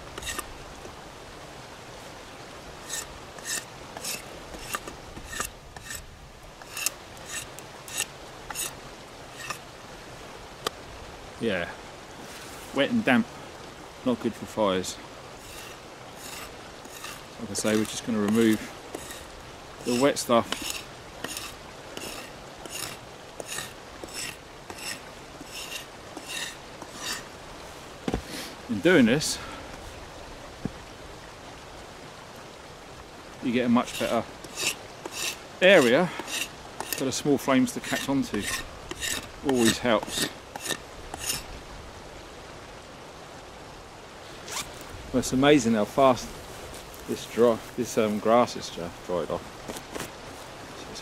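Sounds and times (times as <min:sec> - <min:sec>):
knife blade scraping wet stick: 0:00.0 - 0:00.5, 0:02.8 - 0:09.6, 0:15.4 - 0:27.3, 0:33.8 - 0:41.5.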